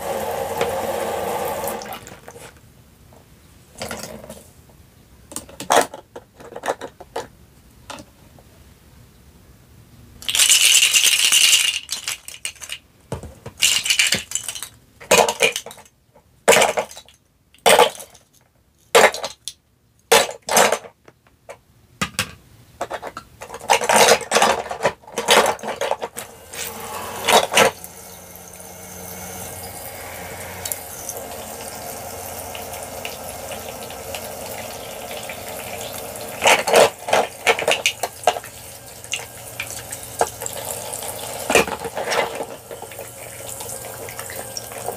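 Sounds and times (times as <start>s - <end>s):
toy faucet running water: 0.0s - 2.4s, 25.5s - 44.9s
plastic toy dishes clattering: 5.3s - 7.3s, 10.2s - 15.9s, 16.5s - 26.3s, 36.3s - 38.5s, 41.4s - 43.2s.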